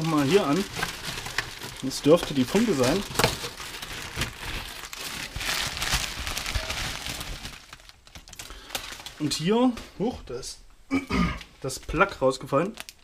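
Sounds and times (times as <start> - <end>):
bubble wrap crinkling: 0.0 - 10.1, 11.6 - 13.0.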